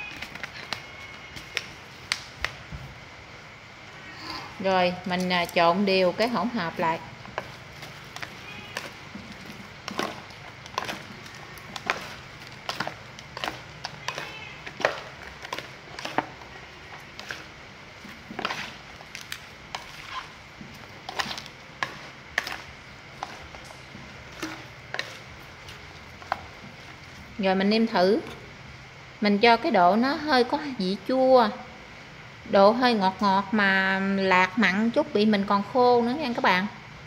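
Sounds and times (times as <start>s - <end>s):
salad tossed in plastic bowl: 6.2s - 27.2s.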